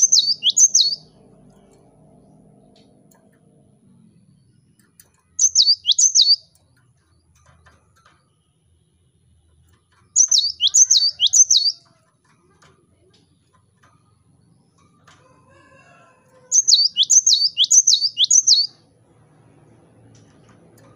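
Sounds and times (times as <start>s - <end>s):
bird singing high whistled notes: 0.0s - 1.1s, 5.4s - 6.4s, 10.1s - 11.8s, 16.5s - 18.8s.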